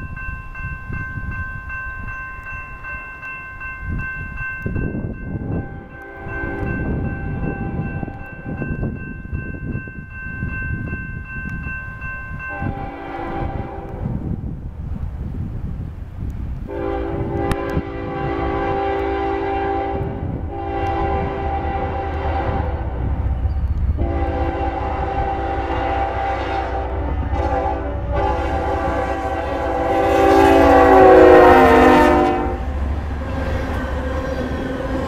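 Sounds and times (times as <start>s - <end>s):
train rumbling: 0.0s - 35.0s
locomotive air horn blasts: 5.6s - 6.8s, 12.5s - 14.1s, 16.7s - 23.2s, 24.0s - 32.8s.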